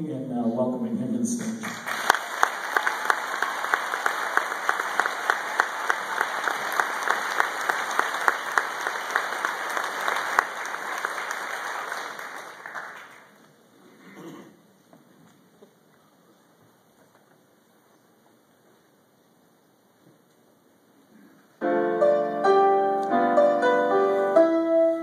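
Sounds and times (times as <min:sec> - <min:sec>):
close loud hand clapping: 0:01.4 - 0:13.4
audience applauding: 0:01.4 - 0:13.6.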